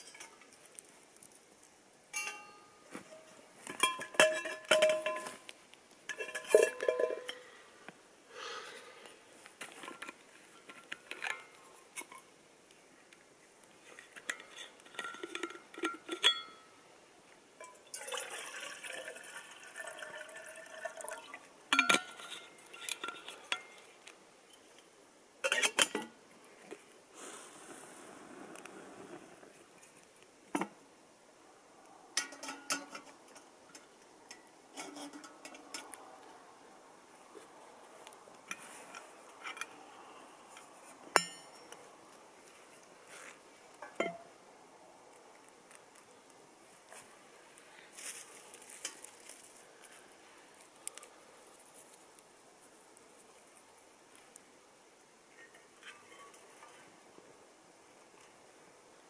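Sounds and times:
metal cookware clinking: 2.1 - 5.4, 6.1 - 7.5, 32.2 - 33.1, 41.2 - 41.8
soft rustling: 45.2 - 54.4.

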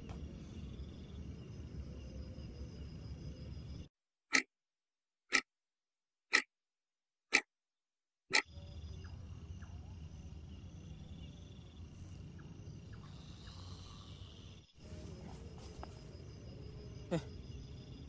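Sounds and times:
insects chirping: 0.0 - 3.9, 8.4 - 18.0.

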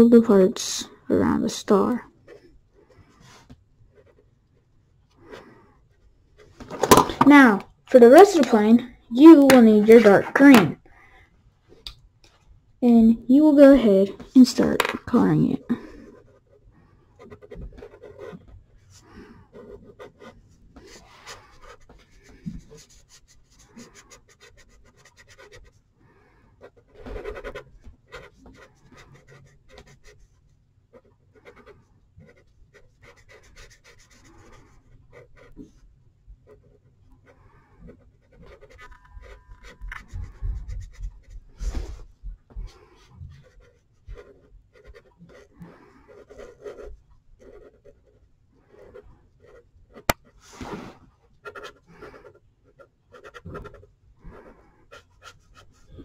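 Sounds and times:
marker scribbling on paper: 19.1 - 25.8, 30.9 - 35.8, 36.5 - 42.0, 42.6 - 50.2, 51.4 - 56.0.

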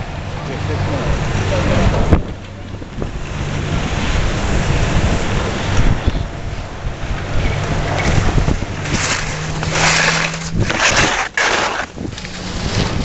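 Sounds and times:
wind buffeting microphone: 0.0 - 13.0
skis scraping over snow: 7.8 - 13.0.

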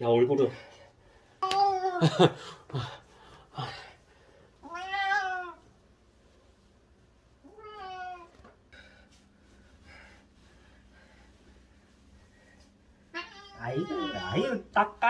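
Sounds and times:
cat meowing: 4.6 - 5.6, 7.4 - 8.3, 13.1 - 14.6.

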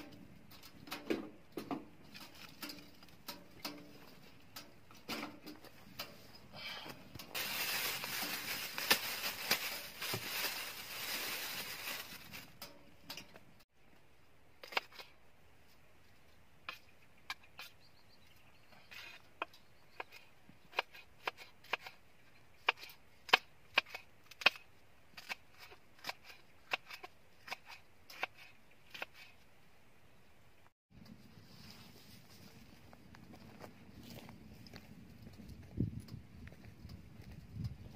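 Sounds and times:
rustling: 7.2 - 13.0.

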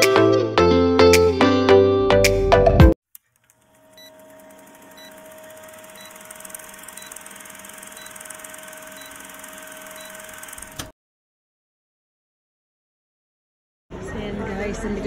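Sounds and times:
projector whirr and hiss: 3.4 - 10.9.

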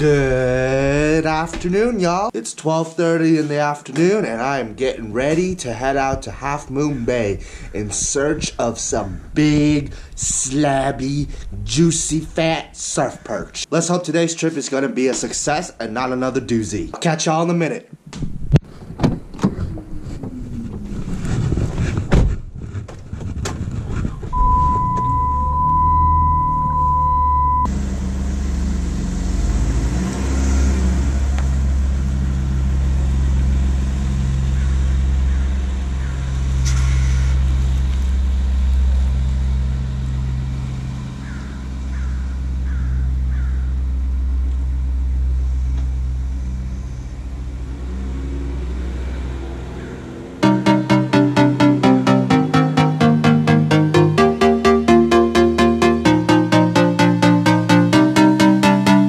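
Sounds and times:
dashboard warning beep: 24.4 - 27.7
engine running: 24.4 - 59.0.

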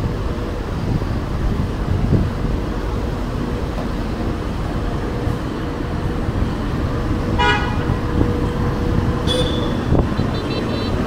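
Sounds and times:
city street traffic: 0.0 - 11.0
vehicle horn toot: 7.4 - 8.1, 9.2 - 11.0.

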